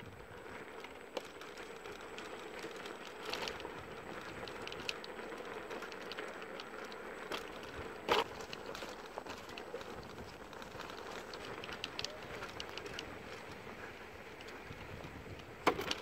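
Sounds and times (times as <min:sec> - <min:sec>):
scooter tyres on rough concrete: 0:00.0 - 0:16.0
small clicks and knocks: 0:14.4 - 0:16.0.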